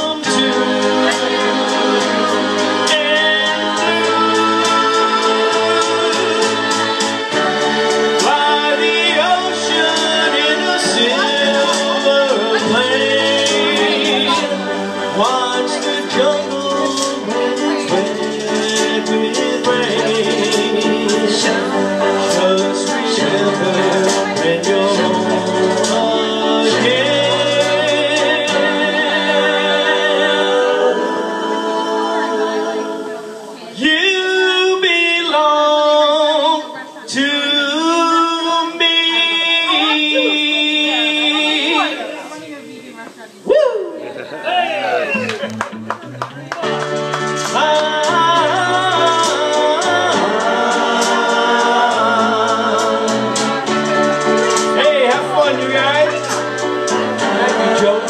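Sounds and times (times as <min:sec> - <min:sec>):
choir-like chords: 0:00.0 - 0:33.9, 0:46.6 - 0:58.0
man singing: 0:00.0 - 0:42.7, 0:46.7 - 0:58.0
backing music: 0:00.0 - 0:58.0.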